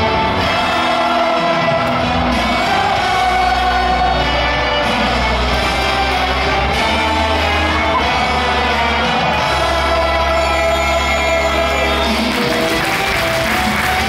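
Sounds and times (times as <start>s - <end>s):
cheer music over loudspeakers: 0.0s - 14.0s
fans singing and shouting: 0.0s - 14.0s.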